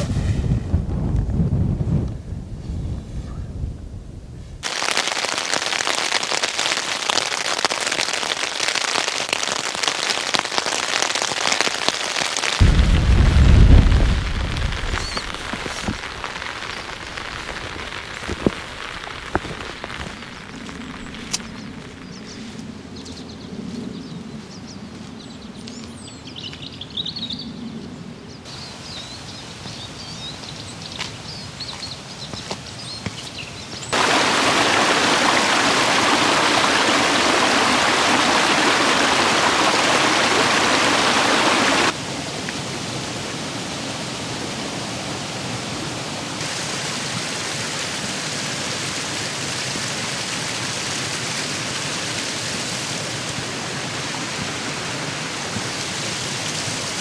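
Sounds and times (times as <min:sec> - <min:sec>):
heavy rain hissing: 0:04.6 - 0:22.5, 0:33.8 - 0:57.0
light rain: 0:04.6 - 0:22.8, 0:28.5 - 0:57.0
birds chirping: 0:14.6 - 0:41.9.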